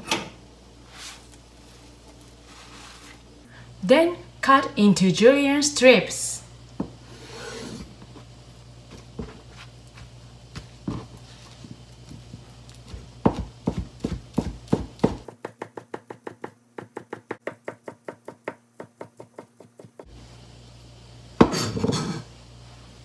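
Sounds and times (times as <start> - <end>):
scraping rustle: 0.8 - 3.3
knife tapping cutting board: 13.3 - 19.9.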